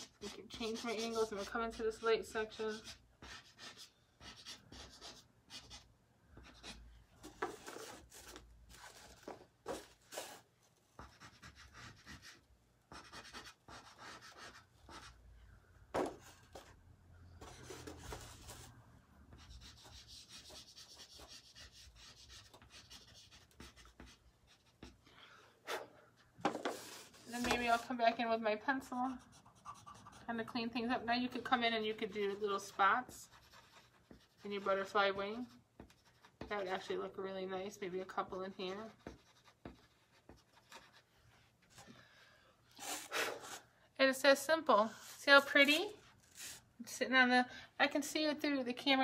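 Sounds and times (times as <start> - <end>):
pastel sticks scratching on paper: 0.0 - 15.2, 17.4 - 25.0, 26.4 - 28.2, 28.8 - 36.9, 38.2 - 41.8.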